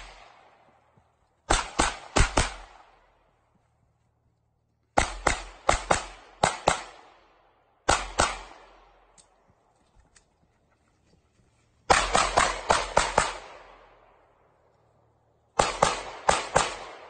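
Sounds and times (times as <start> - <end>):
pistol shots with echo: 1.5 - 3.1, 5.0 - 9.1, 11.9 - 14.0, 15.6 - 17.0.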